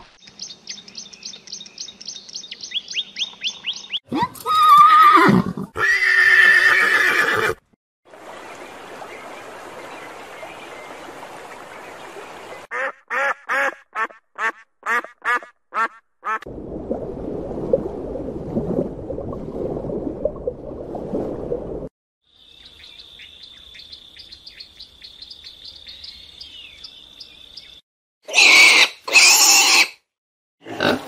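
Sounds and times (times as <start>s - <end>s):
horse whinnying: 4.6s - 7.6s
ducks quacking: 12.7s - 16.4s.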